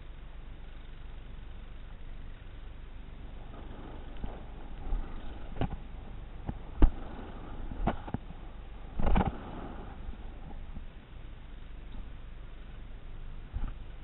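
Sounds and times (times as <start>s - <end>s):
rolling and wind noise: 3.1s - 14.0s.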